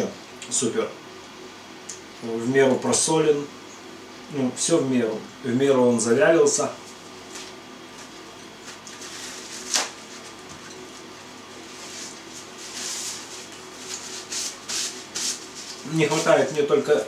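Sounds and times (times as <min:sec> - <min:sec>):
paper napkin rustling: 0:07.2 - 0:17.0.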